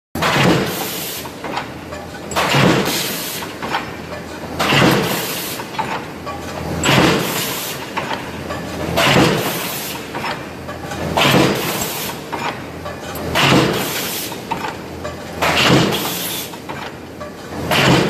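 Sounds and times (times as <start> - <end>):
stamping press hitting: 0.2 - 1.7, 2.3 - 4.0, 4.6 - 6.0, 6.8 - 8.2, 8.9 - 10.4, 11.1 - 16.9, 17.6 - 18.0.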